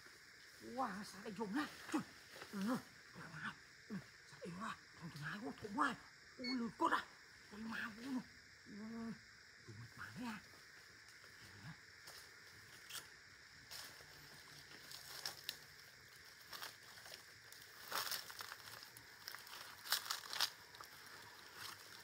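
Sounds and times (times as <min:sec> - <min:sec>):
footsteps crunching dry leaves: 0:16.3 - 0:22.0.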